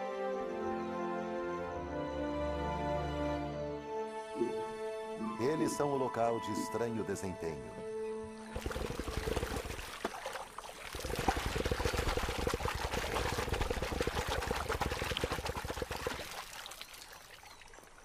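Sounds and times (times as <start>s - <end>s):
water spattering: 8.5s - 18.0s.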